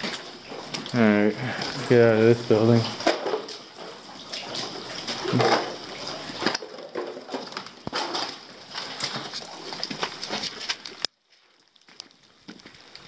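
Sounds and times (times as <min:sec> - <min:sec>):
rain hiss: 0:00.0 - 0:13.0
footsteps on debris: 0:02.8 - 0:13.0.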